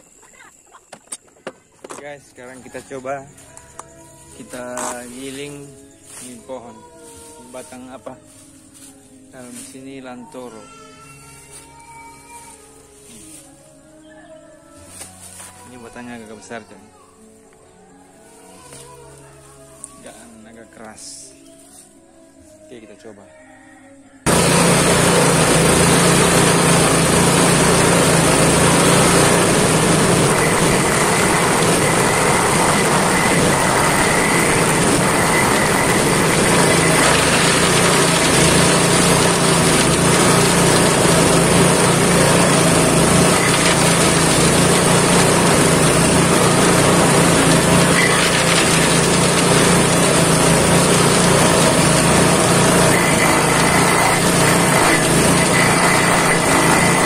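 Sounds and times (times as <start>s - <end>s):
grass chopper running: 2.0s - 10.6s, 24.2s - 57.0s
blades chopping branches: 24.3s - 57.0s.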